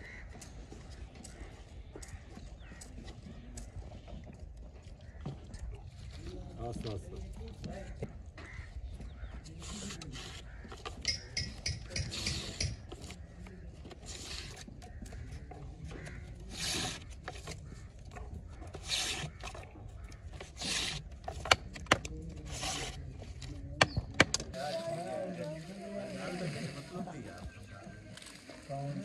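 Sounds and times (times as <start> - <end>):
rasping rubbing strokes: 9.4 - 24.9.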